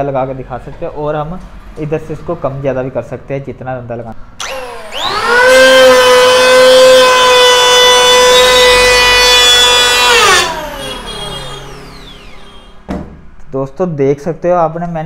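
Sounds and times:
electric hand planer whining: 0:04.4 - 0:13.0.

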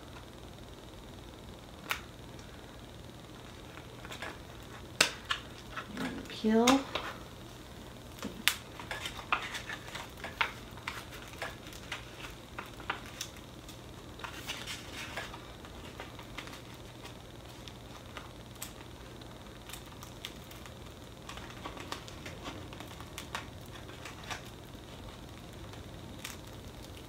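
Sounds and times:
backing paper peeling off vinyl: 0:08.2 - 0:27.0.

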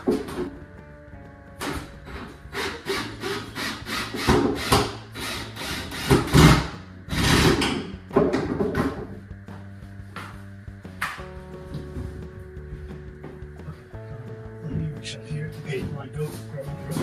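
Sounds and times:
saw cutting wood: 0:02.1 - 0:07.8.

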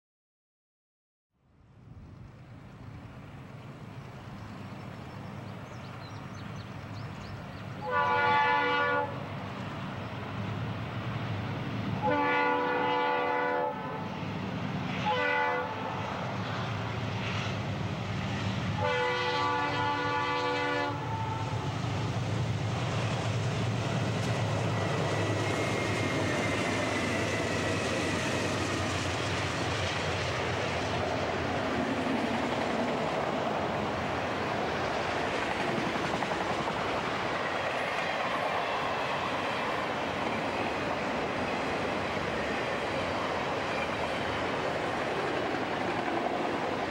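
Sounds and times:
train engine rumble: 0:01.6 - 0:46.9
train wheel noise: 0:02.1 - 0:46.9
train air horn blasts: 0:07.8 - 0:09.2, 0:12.0 - 0:14.1, 0:15.0 - 0:16.0, 0:18.8 - 0:21.6.

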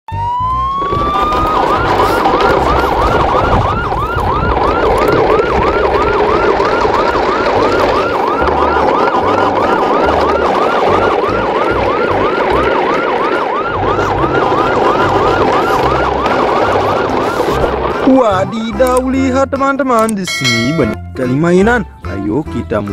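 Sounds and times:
siren wailing and yelping: 0:00.1 - 0:18.2.

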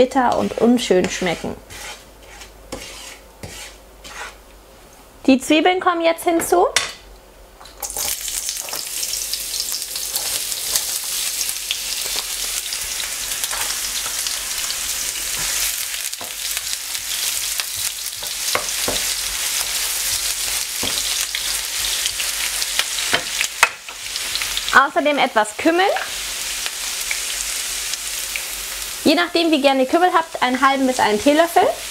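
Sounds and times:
wooden spatula scraping a pan: 0:00.1 - 0:04.4
onions sizzling in a frying pan: 0:07.8 - 0:31.9.

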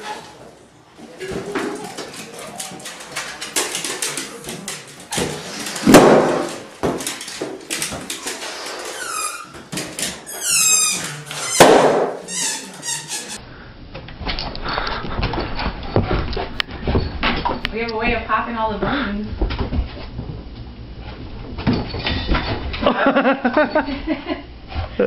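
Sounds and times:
dog rubbing balloons on floor: 0:05.1 - 0:13.4
high falling balloon squeaks: 0:08.5 - 0:13.4
balloon burst: 0:11.4 - 0:13.4.

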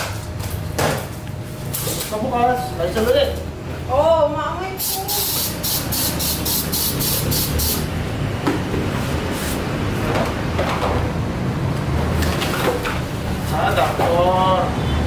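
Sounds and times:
low background hum: 0:00.0 - 0:14.5
aerosol spray bursts: 0:04.8 - 0:07.9.

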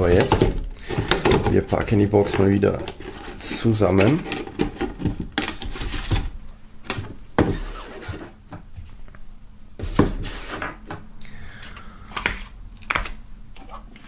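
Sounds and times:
plastic box knocking and clattering: 0:00.0 - 0:06.3, 0:06.9 - 0:07.7.

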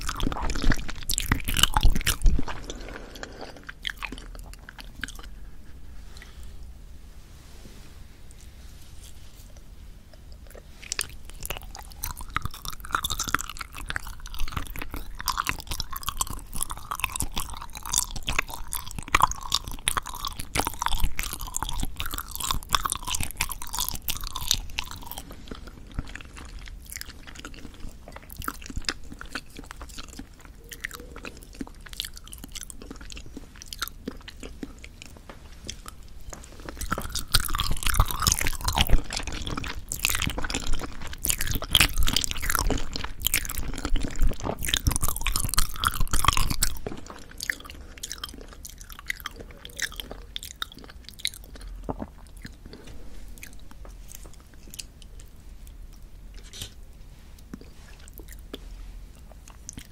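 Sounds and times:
chewing chewy jelly: 0:00.0 - 0:06.7, 0:08.3 - 0:59.9.

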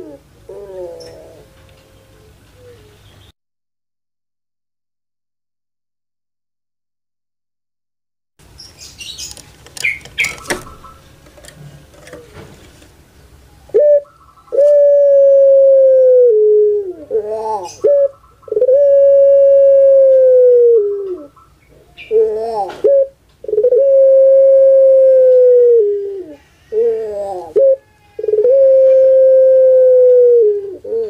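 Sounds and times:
dove cooing: 0:00.0 - 0:03.0, 0:13.6 - 0:31.0.

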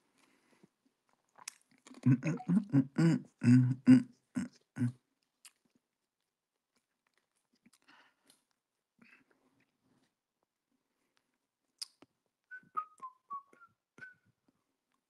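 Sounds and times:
man making wordless vocal sounds: 0:02.1 - 0:05.0.

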